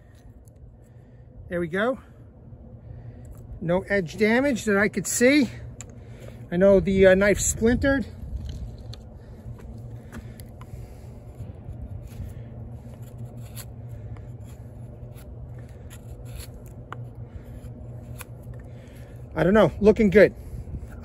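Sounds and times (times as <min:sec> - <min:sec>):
steady low rumble: 0:00.0 - 0:21.0
small clicks and scrapes: 0:08.3 - 0:18.7.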